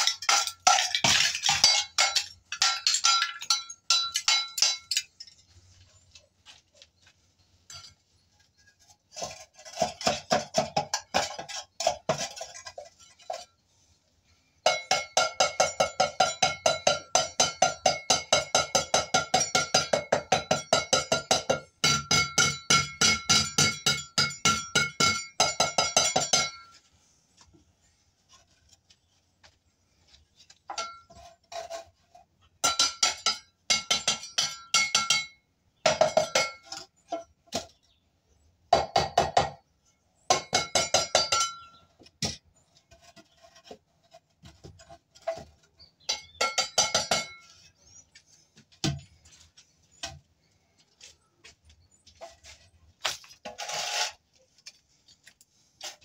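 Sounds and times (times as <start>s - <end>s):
hammer striking concrete floor: 14.7s - 26.7s.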